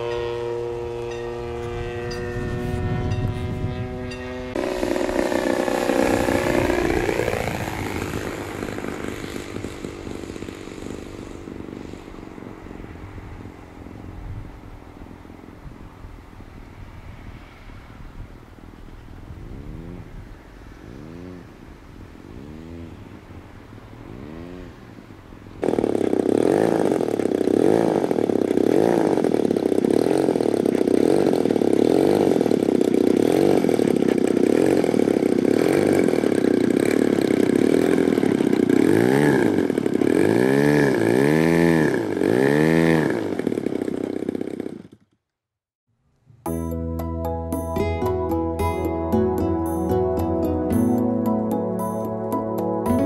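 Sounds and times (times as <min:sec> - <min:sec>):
model airplane engine running: 0:00.0 - 0:14.0, 0:20.9 - 0:21.6, 0:22.3 - 0:23.0, 0:25.6 - 0:45.1.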